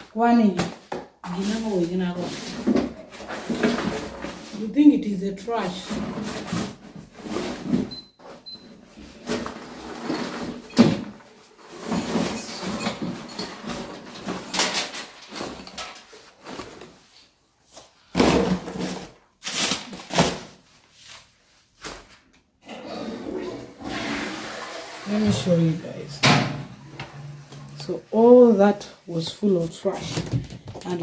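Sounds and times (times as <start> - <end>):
paper rustling and shuffling: 13.6 - 18.0, 29.3 - 31.0.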